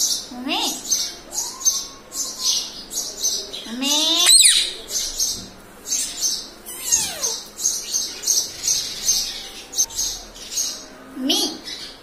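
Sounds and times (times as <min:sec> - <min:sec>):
parakeet chirping: 0:04.2 - 0:04.9, 0:05.9 - 0:09.9.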